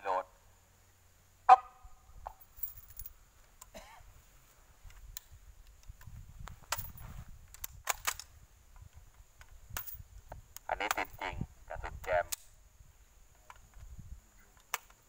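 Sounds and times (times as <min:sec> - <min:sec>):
low wind rumble: 0:04.0 - 0:14.3
rifle action metallic clicks: 0:06.7 - 0:08.3.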